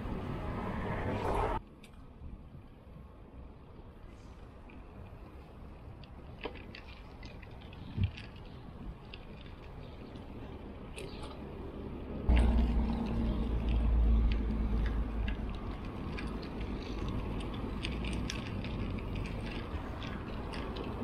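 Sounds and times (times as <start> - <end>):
bike tyres rolling on asphalt: 0.0 - 21.0
bike ticks and rattles: 1.6 - 21.0
wind buffeting microphone: 4.6 - 21.0.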